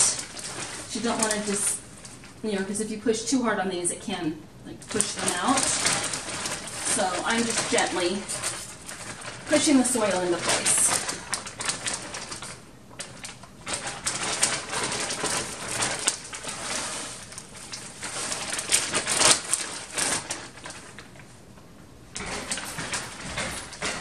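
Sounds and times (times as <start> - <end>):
soil rustling: 0.0 - 2.4, 4.8 - 21.3
plastic bag crinkling: 0.0 - 3.0, 4.7 - 24.0.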